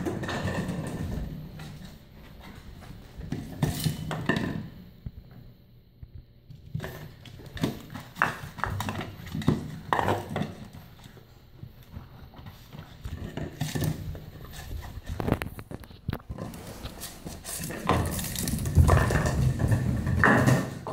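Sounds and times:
puppy claws on floorboards: 6.5 - 20.9.

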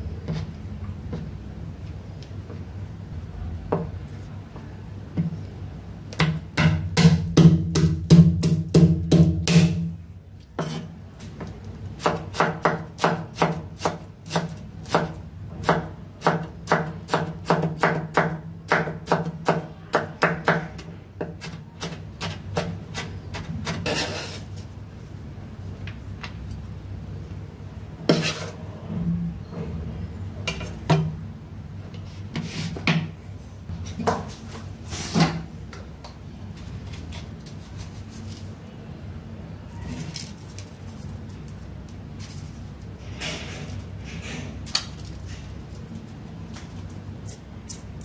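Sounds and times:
blade scraping board: 23.8 - 24.5, 28.1 - 28.6.

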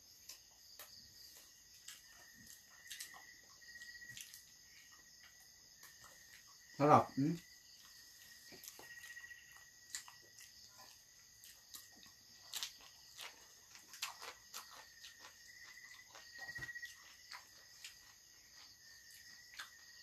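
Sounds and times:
crickets trilling: 0.0 - 20.0
mouth sounds of chewing: 0.1 - 20.0.

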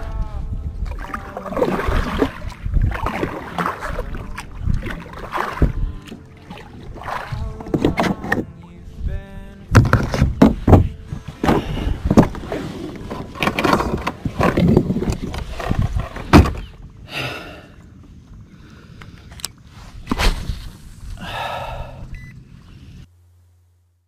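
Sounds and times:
fishing gear knocking and rustling: 9.9 - 17.0.

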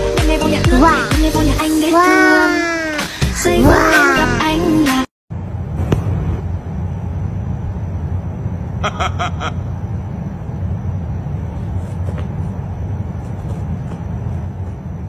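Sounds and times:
low background rumble: 3.4 - 15.0.

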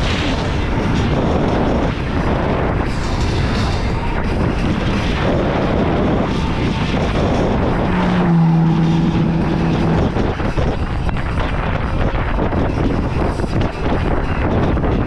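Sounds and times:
wind buffeting microphone: 0.0 - 15.0
steady low hum: 2.5 - 12.4.

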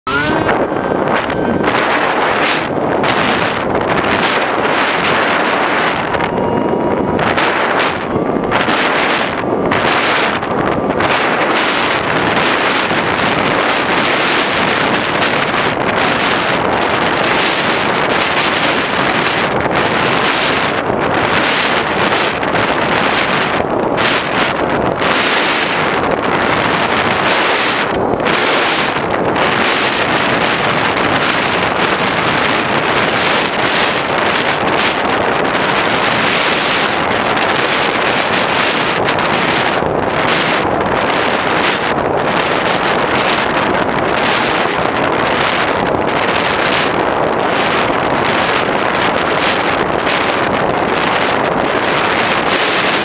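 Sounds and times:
wind buffeting microphone: 0.1 - 53.0.

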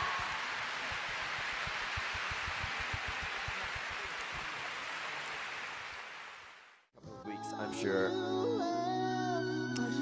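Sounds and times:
applause: 0.0 - 6.8.

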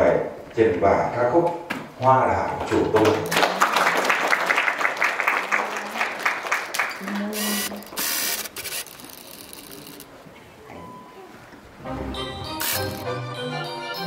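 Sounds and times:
audience clapping: 2.6 - 8.0.

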